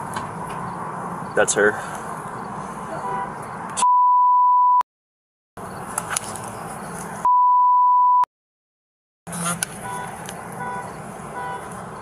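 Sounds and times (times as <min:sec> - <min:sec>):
censor bleep tone: 0:03.8 - 0:04.8, 0:07.2 - 0:08.3.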